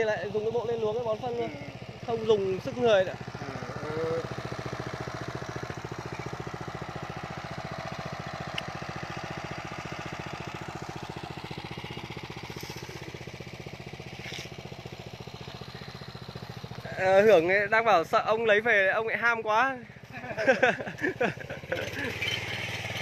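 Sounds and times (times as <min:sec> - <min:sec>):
small tiller engine running: 0:00.0 - 0:23.0.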